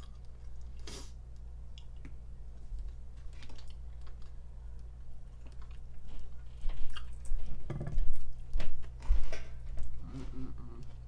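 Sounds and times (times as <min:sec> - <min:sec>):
close-miked chewing: 0:00.0 - 0:08.6.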